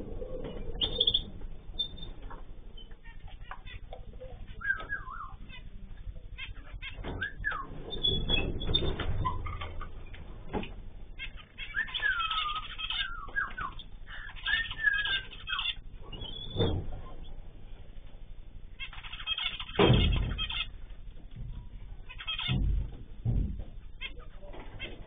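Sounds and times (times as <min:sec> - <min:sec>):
small birds chirping and whistling: 0:00.3 - 0:10.2, 0:11.2 - 0:17.4, 0:18.8 - 0:20.7, 0:22.0 - 0:22.6
sharp knocks: 0:19.7 - 0:20.5, 0:22.4 - 0:23.8.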